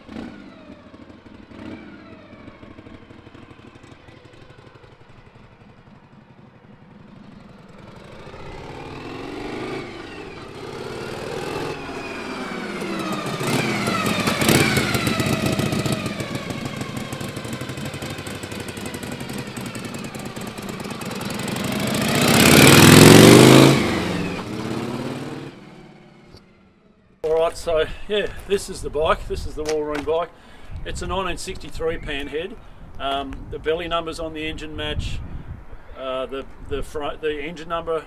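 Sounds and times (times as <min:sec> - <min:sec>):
motorcycle riding past: 0:00.0 - 0:27.3.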